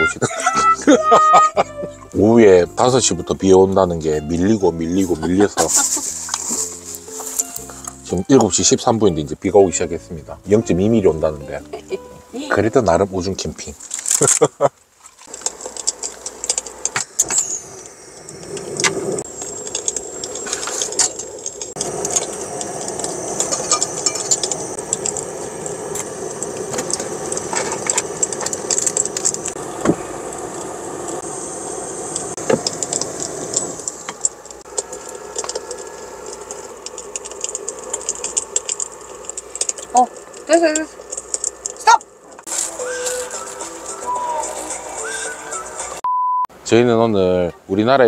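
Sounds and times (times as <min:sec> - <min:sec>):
cooking gear clinking: 0:19.3 - 0:29.6.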